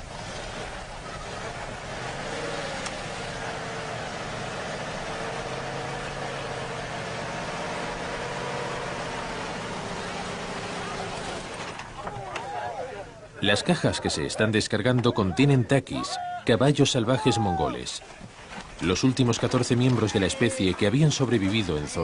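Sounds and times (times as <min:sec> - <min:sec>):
vehicle engine humming: 0:00.0 - 0:13.4.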